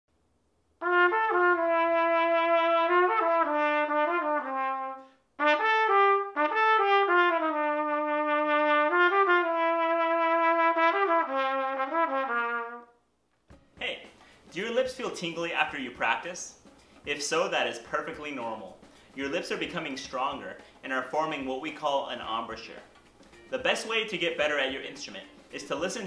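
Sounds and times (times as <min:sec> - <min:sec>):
trumpet playing slow melody: 0:00.8 - 0:13.0.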